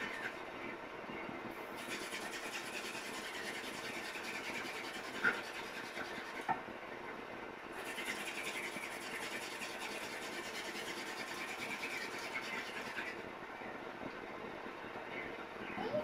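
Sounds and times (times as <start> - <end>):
wooden spindle scratching fireboard: 0.0 - 0.4, 1.8 - 6.6, 7.7 - 13.3.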